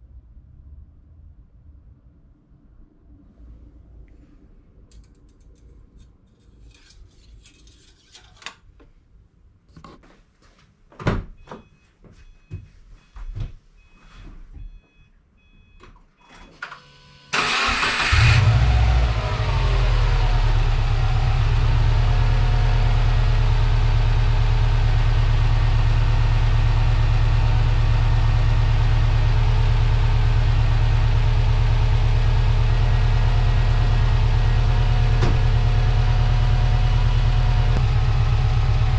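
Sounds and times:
car engine starting and idling: 0:16.7 - 0:38.9.

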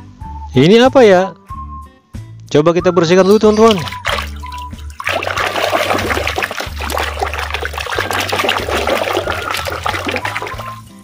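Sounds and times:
water sloshing and splashing: 0:03.3 - 0:10.9
small wet clicks: 0:03.4 - 0:10.8.

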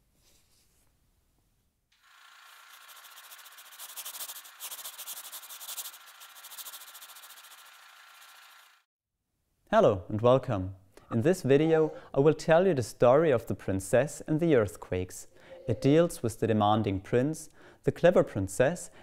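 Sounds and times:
stylus scratching across paper: 0:02.4 - 0:07.8.

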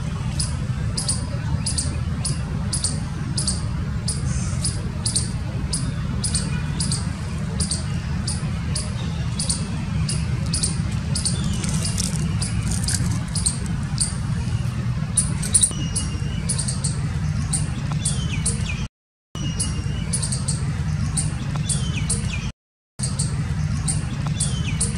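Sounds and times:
steady low rumble: 0:00.0 - 0:16.2
squirrel chirping: 0:00.4 - 0:18.8, 0:19.4 - 0:24.9.

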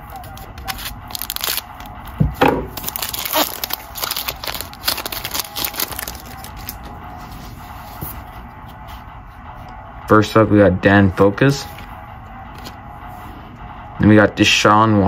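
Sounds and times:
plastic wrapper crinkling and tearing: 0:00.0 - 0:02.1, 0:02.7 - 0:06.9.

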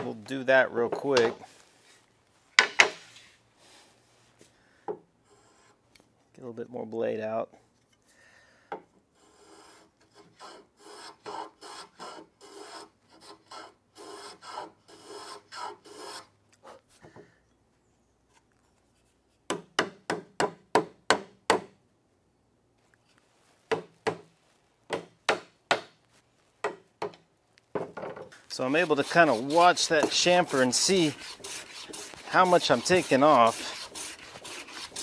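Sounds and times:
sharp wooden knocks: 0:02.6 - 0:03.0, 0:24.9 - 0:26.0
hand plane rasping strokes: 0:09.2 - 0:16.3, 0:28.5 - 0:35.0.

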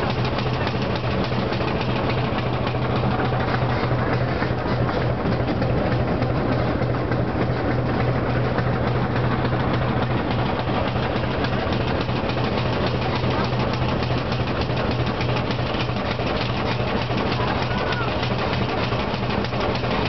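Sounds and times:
fast even train clatter: 0:00.0 - 0:20.0
train low drone: 0:00.0 - 0:20.0.

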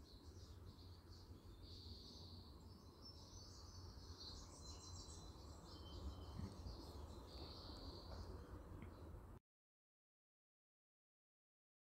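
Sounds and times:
songbirds chirping and trilling: 0:00.0 - 0:09.4.

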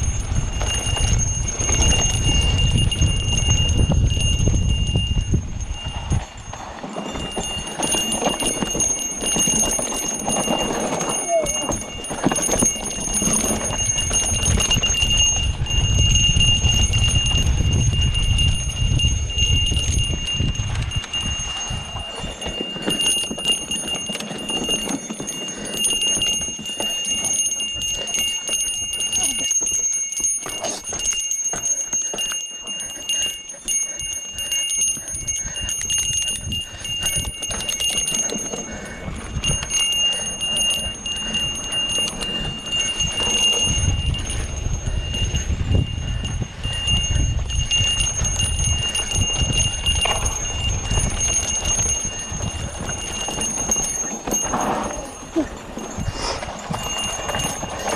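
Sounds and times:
mountain bike rattling: 0:00.0 - 0:57.9
small bell jingling: 0:00.0 - 0:57.9.

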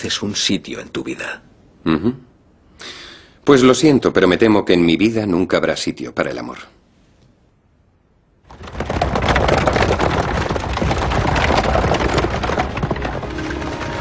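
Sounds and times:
horse-drawn carriage clattering: 0:08.5 - 0:14.0.

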